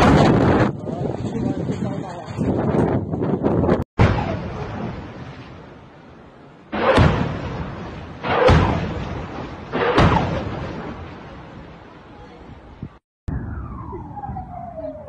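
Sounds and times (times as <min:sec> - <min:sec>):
rocket fire blasts: 0:04.0 - 0:12.0.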